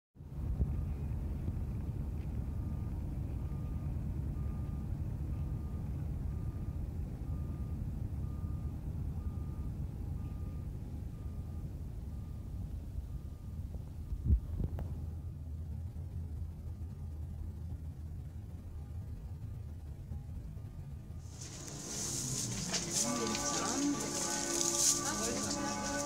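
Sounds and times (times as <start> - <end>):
low rumble of engines: 0.2 - 26.0
reversing alarm beeping: 2.4 - 15.5, 18.5 - 26.0.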